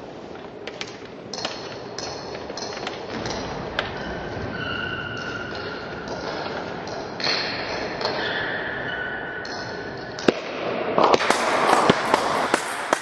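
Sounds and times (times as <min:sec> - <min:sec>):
table tennis ball bouncing: 0:09.4 - 0:13.0.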